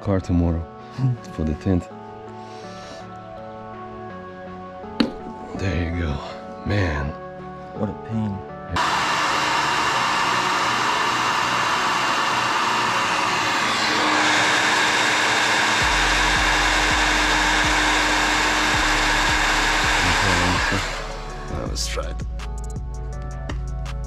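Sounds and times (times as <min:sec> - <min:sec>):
electric motor air rush: 0:08.8 - 0:21.7.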